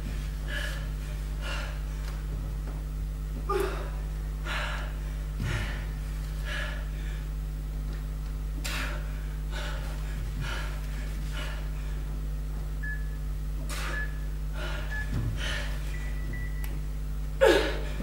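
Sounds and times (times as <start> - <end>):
woman breathing hard: 0.0 - 2.4, 3.4 - 7.5, 8.6 - 12.2, 13.6 - 16.2, 17.4 - 18.0
low electrical hum: 0.0 - 18.0.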